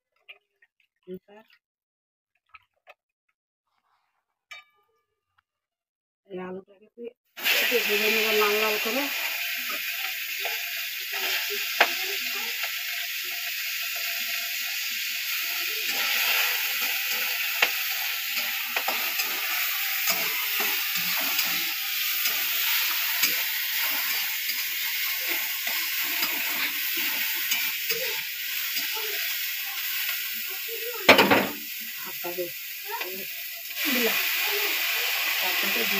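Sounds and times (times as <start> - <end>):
potatoes sizzling in hot oil: 7.4 - 35.9
spatula scraping pan: 15.8 - 30.2.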